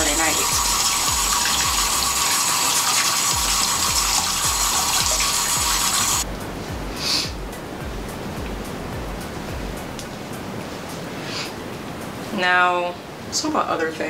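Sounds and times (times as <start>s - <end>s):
sink tap running: 0.0s - 6.2s
background music with steady beat: 0.0s - 12.4s.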